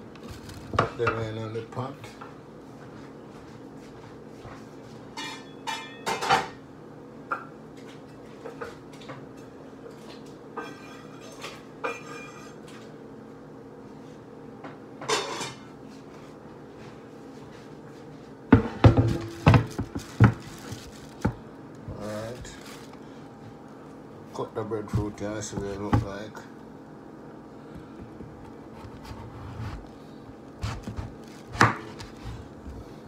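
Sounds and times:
pots and pans clanking: 5.2 - 6.6, 18.6 - 21.3
steady low hum: 6.6 - 33.0.

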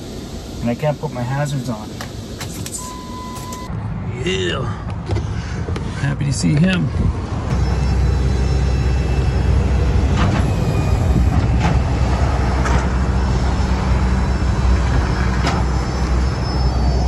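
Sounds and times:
truck engine rumbling: 0.0 - 17.0.

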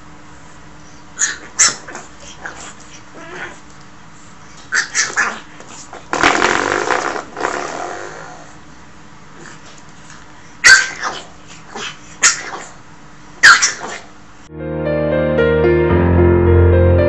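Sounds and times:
puppy growling bark: 1.2 - 3.6, 4.7 - 8.6, 10.6 - 12.8, 13.4 - 14.1
puppy yapping: 1.2 - 3.6, 4.6 - 8.6, 10.6 - 12.8, 13.4 - 14.1.

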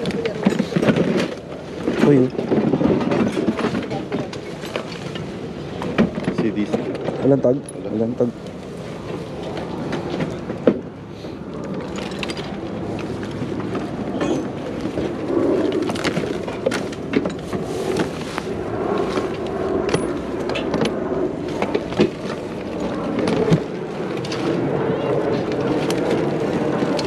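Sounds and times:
crowd murmur: 21.2 - 27.0.

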